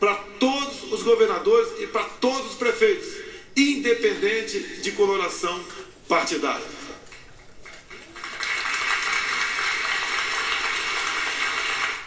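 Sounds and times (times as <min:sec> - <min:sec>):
audience applauding: 0:07.9 - 0:12.0.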